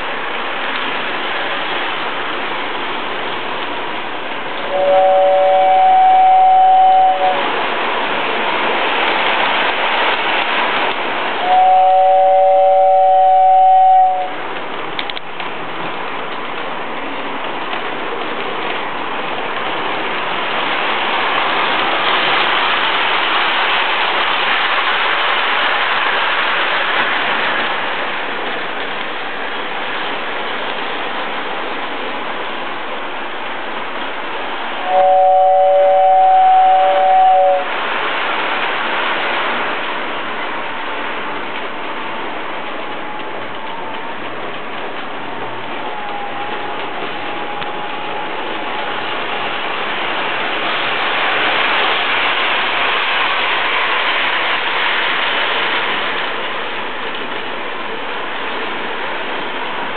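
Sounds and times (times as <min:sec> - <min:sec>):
two-note train horn: 0:04.6 - 0:07.6, 0:11.4 - 0:14.4, 0:34.8 - 0:37.8, 0:45.8 - 0:48.8.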